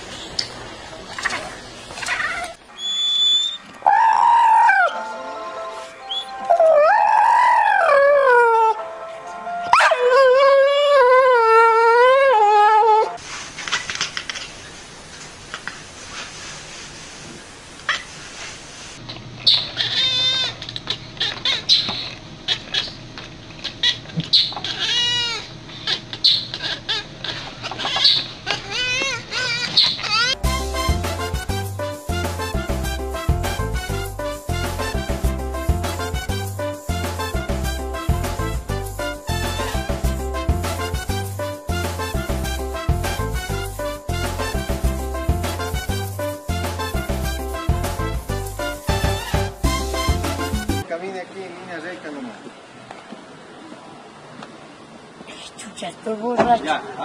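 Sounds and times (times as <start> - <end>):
cats chirping and trilling: 1.2 - 5.0, 19.4 - 30.4
cats yowling: 1.2 - 5.0, 6.4 - 8.8, 9.8 - 13.2, 19.5 - 30.4.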